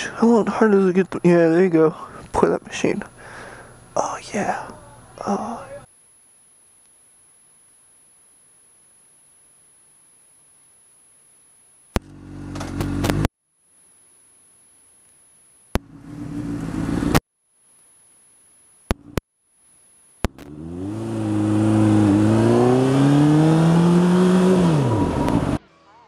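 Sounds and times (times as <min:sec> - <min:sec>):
motorcycle engine accelerating: 0:12.0 - 0:13.3, 0:15.8 - 0:17.2, 0:20.3 - 0:25.6.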